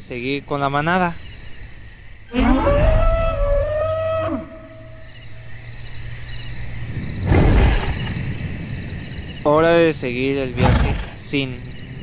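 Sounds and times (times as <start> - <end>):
chirping insects: 0.0 - 12.0
dinosaur call: 2.3 - 5.1.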